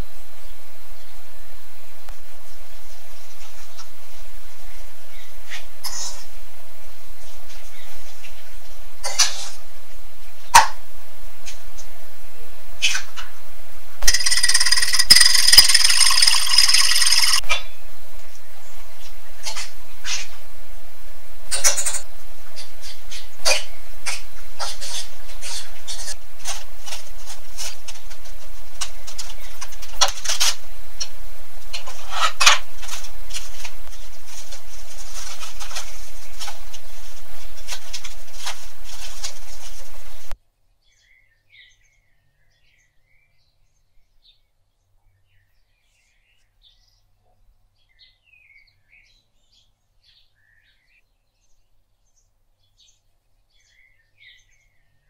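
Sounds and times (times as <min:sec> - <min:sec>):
low hum: 0:14.0 - 0:17.4
scattered clicks: 0:14.0 - 0:17.4
faint birds chirping: 0:40.1 - 0:55.0.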